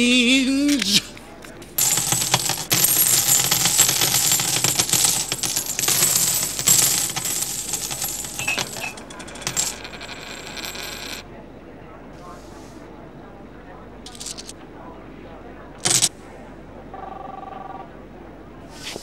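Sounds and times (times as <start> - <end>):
coins jingling: 1.8 - 11.2, 14.1 - 14.5, 15.8 - 16.1.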